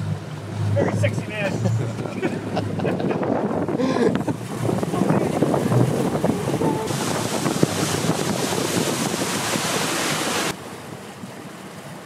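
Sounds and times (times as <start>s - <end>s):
water splashing against hull: 0.0s - 12.0s
wind on microphone: 0.8s - 10.6s.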